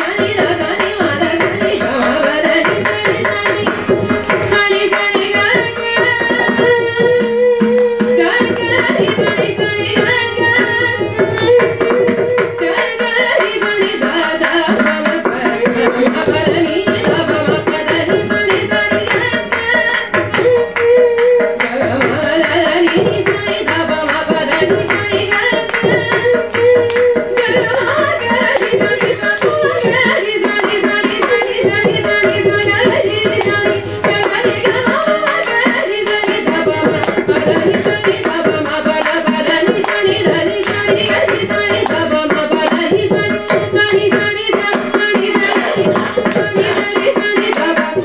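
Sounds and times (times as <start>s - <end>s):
violin: 0.0s - 48.0s
women singing: 0.0s - 48.0s
hand drum playing: 32.6s - 48.0s.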